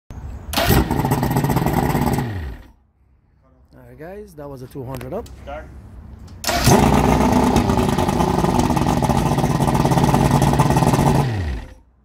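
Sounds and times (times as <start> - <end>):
outboard motor running: 0.6 - 2.7, 6.5 - 11.8.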